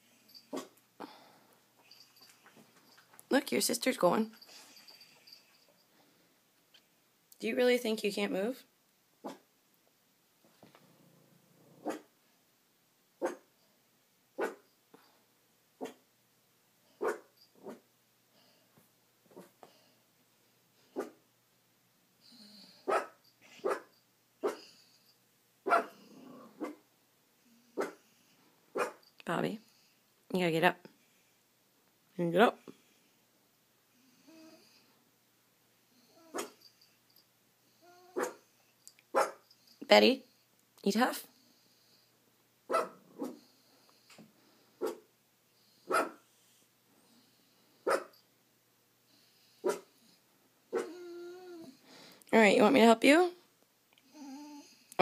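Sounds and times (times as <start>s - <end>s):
dog barking: 9.2s - 9.4s, 11.8s - 12.1s, 13.2s - 13.5s, 14.4s - 14.6s, 15.8s - 16.0s, 17.0s - 17.8s, 21.0s - 21.2s, 22.8s - 24.7s, 25.7s - 26.0s, 26.6s - 26.8s, 27.8s - 28.0s, 28.7s - 29.0s, 36.3s - 36.6s, 38.2s - 38.4s, 39.1s - 39.4s, 42.7s - 43.4s, 44.8s - 45.0s, 45.9s - 46.2s, 47.8s - 48.2s, 49.6s - 49.9s, 50.7s - 51.0s.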